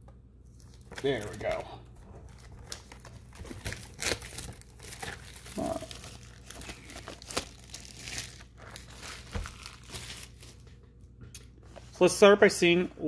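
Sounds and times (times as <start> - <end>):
plastic shrink wrap crinkling: 0.5 - 10.7.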